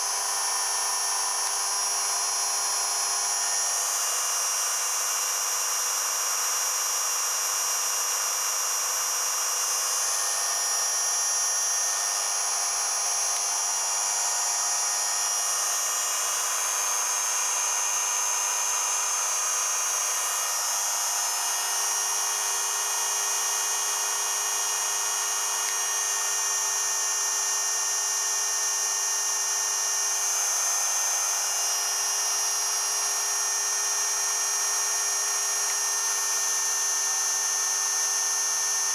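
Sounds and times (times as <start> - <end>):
electric motor whine: 0.0 - 6.9, 7.5 - 28.5.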